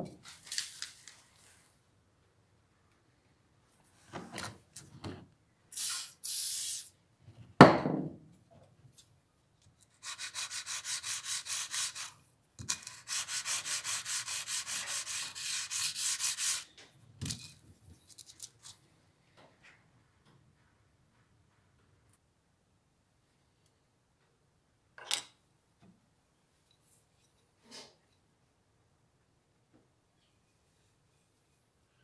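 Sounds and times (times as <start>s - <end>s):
aerosol can spraying: 5.7s - 6.9s
screwdriver rubbing on sandpaper: 10.0s - 12.1s, 12.7s - 16.7s.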